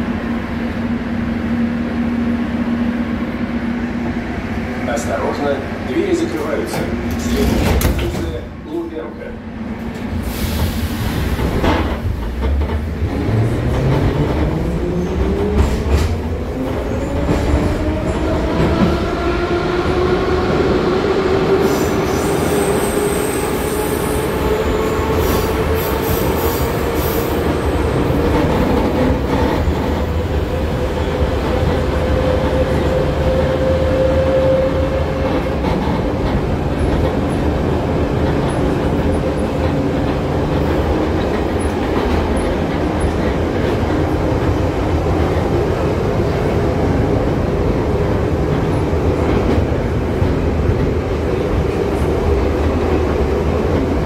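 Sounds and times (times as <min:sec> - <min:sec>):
wheels rumbling on rails: 0:11.0 - 0:21.4, 0:24.2 - 0:54.0.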